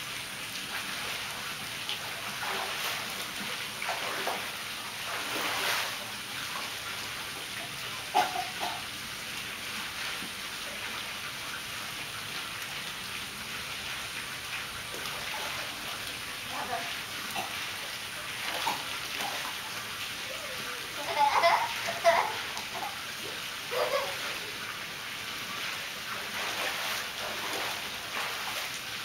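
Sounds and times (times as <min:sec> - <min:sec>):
pool water splashing: 0:00.0 - 0:29.0
running water hiss: 0:00.0 - 0:29.0
sharp splash: 0:02.3 - 0:06.0, 0:26.2 - 0:28.8.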